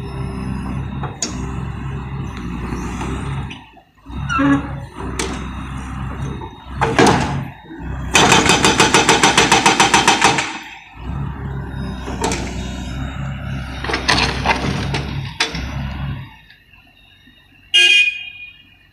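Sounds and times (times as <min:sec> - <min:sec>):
diesel engine running: 0:00.0 - 0:17.7
hydraulic breaker hammering: 0:08.1 - 0:10.8.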